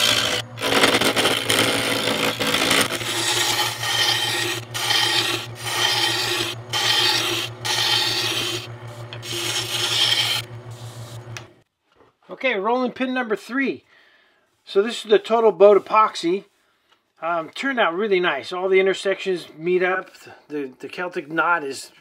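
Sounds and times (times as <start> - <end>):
lathe motor hum: 0.0 - 11.5.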